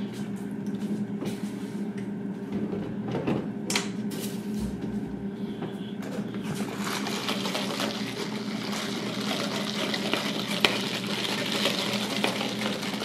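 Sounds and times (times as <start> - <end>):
ice rattling in plastic cup: 6.5 - 13.0.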